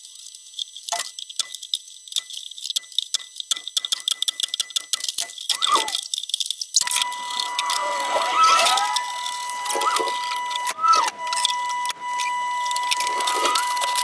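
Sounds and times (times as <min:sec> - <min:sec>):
steady high-pitched tone: 0:06.8 - 0:14.0.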